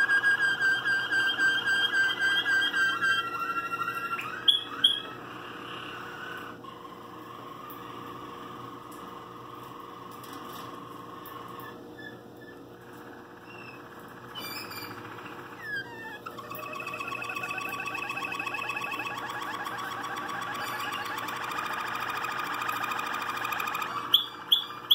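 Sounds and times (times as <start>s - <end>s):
high steady whistle: 0.0s - 5.1s, 16.4s - 24.8s
canary singing trills: 0.0s - 10.1s, 10.8s - 24.9s.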